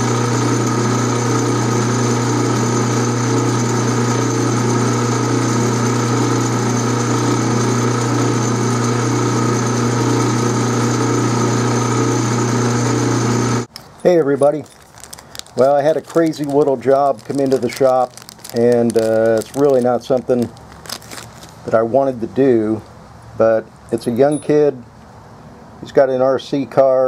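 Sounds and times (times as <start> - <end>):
metal lathe humming: 0.0 - 14.6.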